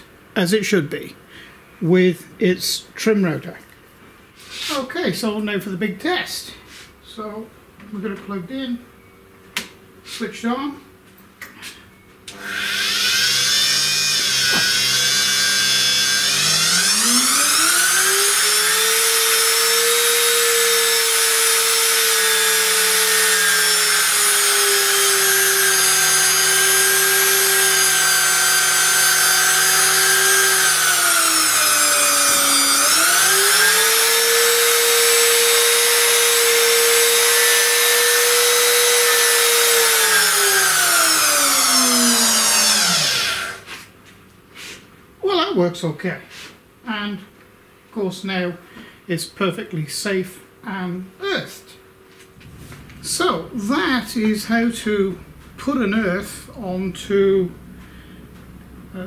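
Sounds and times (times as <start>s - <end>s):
router motor whining: 12.3s - 43.7s.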